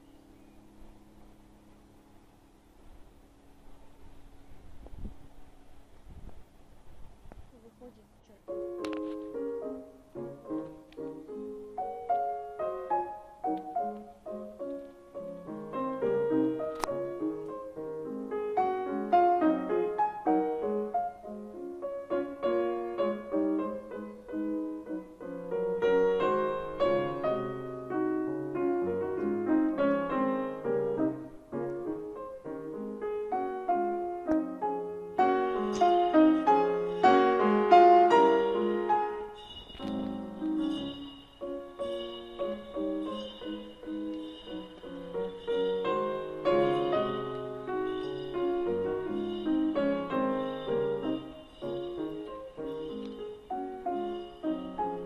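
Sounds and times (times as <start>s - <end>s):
piano playing flowing notes: 0.0s - 4.2s, 8.4s - 55.0s.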